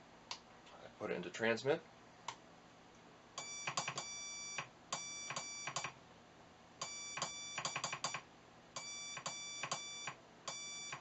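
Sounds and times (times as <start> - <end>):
morse code beeps: 3.4 - 5.9, 6.8 - 8.2, 8.8 - 11.0.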